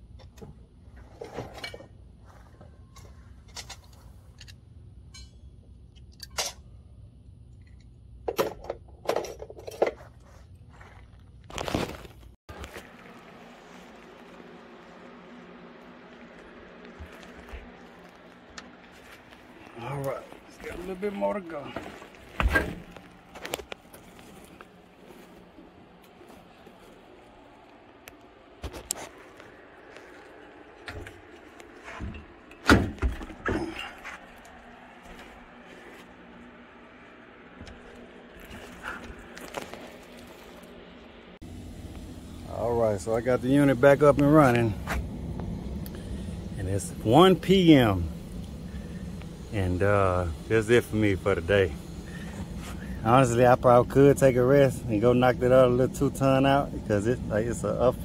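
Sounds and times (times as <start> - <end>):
low steady hum: 0.0 - 58.0.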